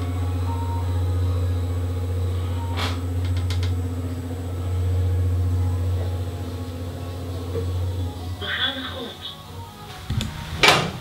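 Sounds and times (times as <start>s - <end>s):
lift drive humming: 0.0s - 11.0s
lift clicks: 2.7s - 3.9s.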